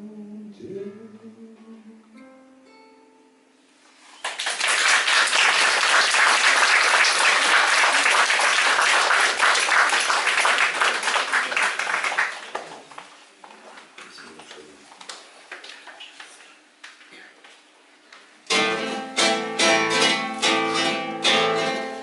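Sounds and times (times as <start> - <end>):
audience applauding: 4.2 - 12.9.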